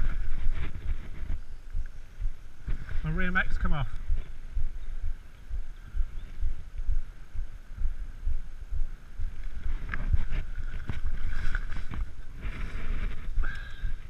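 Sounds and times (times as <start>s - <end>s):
bike clicks and rattles on gravel: 0.0s - 2.0s, 9.3s - 14.0s
wind buffeting microphone: 0.0s - 14.0s.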